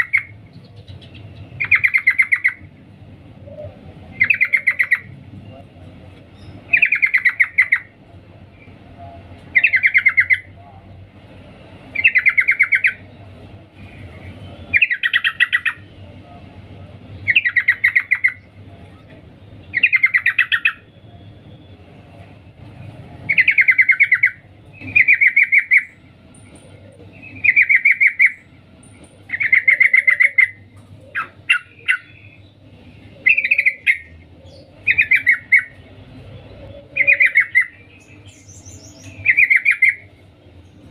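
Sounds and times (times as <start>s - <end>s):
bird chattering call: 0.0s - 2.7s, 3.5s - 5.2s, 6.4s - 7.9s, 9.5s - 10.5s, 12.0s - 13.1s, 17.3s - 18.5s, 29.3s - 32.4s, 33.2s - 35.8s, 36.7s - 40.1s.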